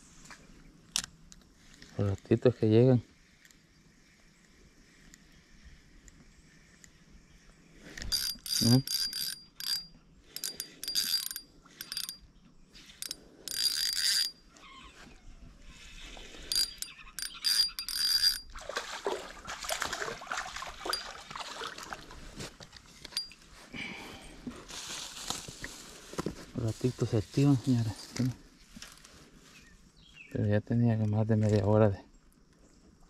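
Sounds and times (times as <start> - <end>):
fishing reel gears whirring: 7.9 - 14.5, 16.4 - 18.6
irregular rustling: 24.4 - 29.7.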